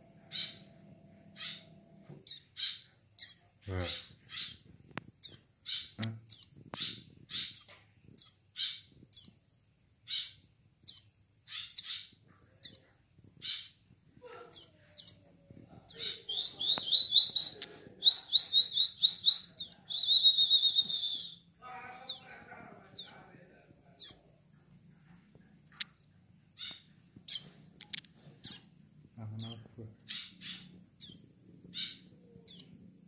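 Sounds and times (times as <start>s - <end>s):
bird chirping: 0.0s - 23.3s, 23.9s - 24.7s, 25.7s - 33.0s
bird chattering: 0.2s - 0.7s, 1.4s - 1.7s, 2.3s - 4.6s, 5.2s - 9.3s, 10.1s - 13.8s, 15.9s - 21.2s, 22.1s - 22.4s, 24.0s - 24.2s, 28.4s - 28.7s, 29.4s - 32.8s.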